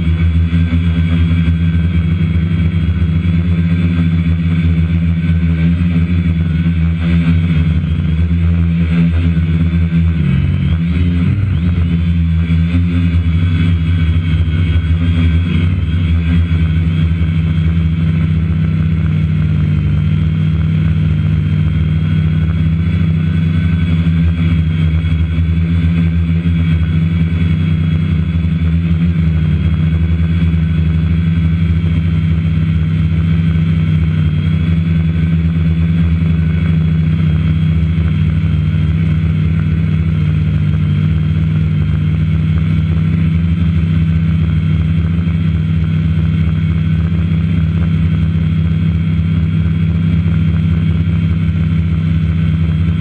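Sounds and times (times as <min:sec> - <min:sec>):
drone propellers buzzing: 0:00.0 - 0:53.0.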